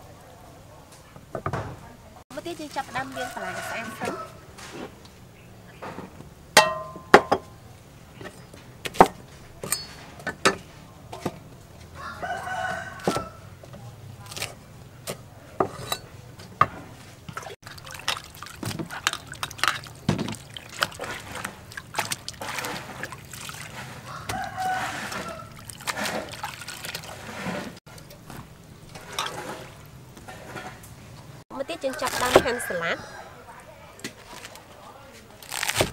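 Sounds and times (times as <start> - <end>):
water sloshing in basin: 2.3 - 5.0, 16.5 - 34.6
rooster crowing: 3.0 - 4.6, 11.9 - 13.6, 24.0 - 25.7, 31.5 - 33.8
dishes and metal basin clacking: 5.8 - 7.6, 8.2 - 11.5, 15.0 - 31.4.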